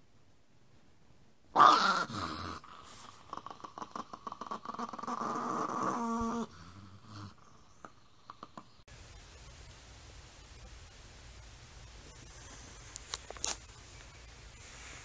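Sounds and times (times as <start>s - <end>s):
small dog growling and snarling: 1.6s - 7.6s.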